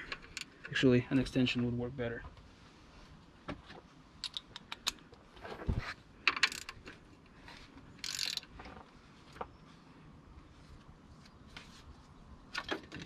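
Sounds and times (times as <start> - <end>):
sharp metallic clicks: 4.2 - 5.2.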